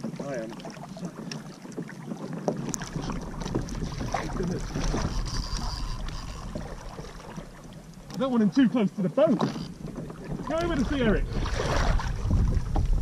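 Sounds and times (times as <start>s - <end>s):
small waves lapping against kayak hull: 0.0s - 13.0s
wind buffeting microphone: 2.5s - 7.9s, 9.6s - 13.0s.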